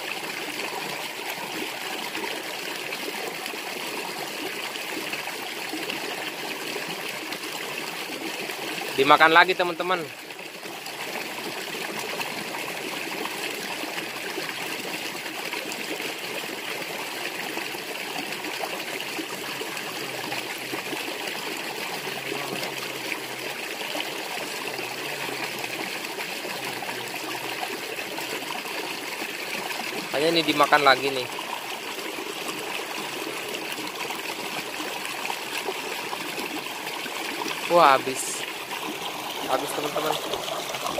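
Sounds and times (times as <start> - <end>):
stream running over stones: 0.0 - 40.9.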